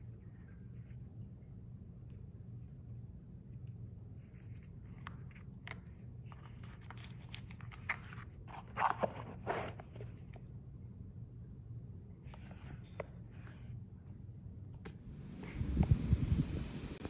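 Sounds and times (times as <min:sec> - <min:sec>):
cardboard and paper rustling: 0:04.2 - 0:10.4.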